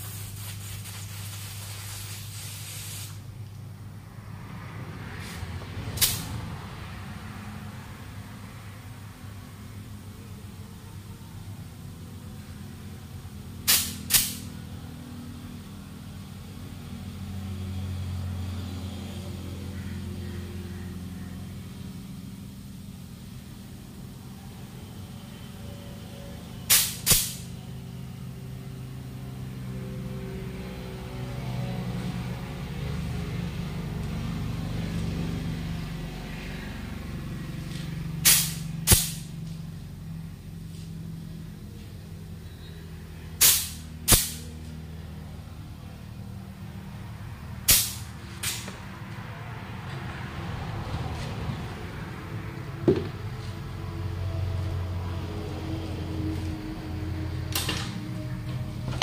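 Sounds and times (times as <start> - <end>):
air bursts from hose: 0.0 - 3.3, 6.0 - 6.3, 13.6 - 14.5, 26.7 - 27.5, 38.2 - 39.3, 43.4 - 44.4, 47.7 - 48.7
short hiss: 0.0 - 3.3, 13.7 - 14.5, 26.7 - 27.5, 38.2 - 39.3, 43.4 - 44.4
tyre being inflated: 0.0 - 3.3
low machine hum: 3.2 - 59.0
sharp pop: 13.7 - 14.5, 26.7 - 27.4, 38.2 - 39.2, 43.4 - 44.4, 47.7 - 48.7.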